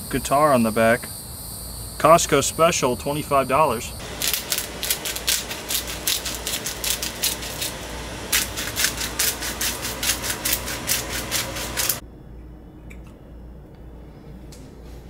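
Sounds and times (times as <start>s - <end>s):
spice grinder crackling: 4.0s - 12.0s.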